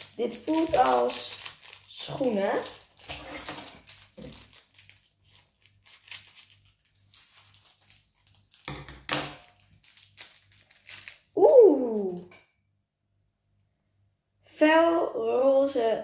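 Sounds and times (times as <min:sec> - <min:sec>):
foil bag crinkling: 0:00.0 - 0:12.3
person saying ooh: 0:11.4 - 0:12.3.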